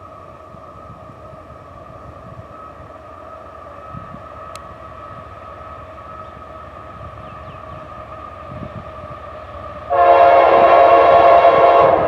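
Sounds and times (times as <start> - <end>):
locomotive horn blast: 9.9 - 12.0.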